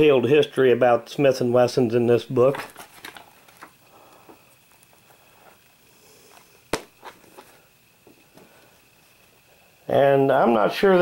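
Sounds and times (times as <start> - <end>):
book rustling: 2.5 - 3.8.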